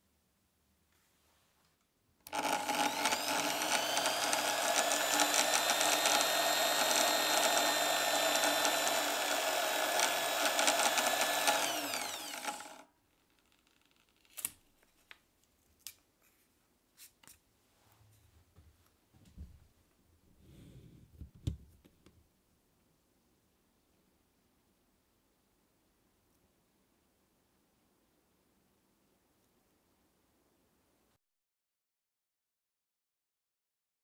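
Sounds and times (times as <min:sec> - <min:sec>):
drill bit drilling into wood: 0:02.3 - 0:12.8
drill press motor running: 0:02.3 - 0:12.8.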